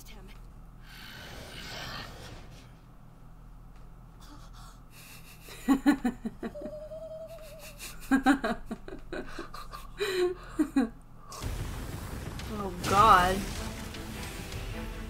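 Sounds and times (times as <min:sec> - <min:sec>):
people laughing: 0:05.0 - 0:10.9.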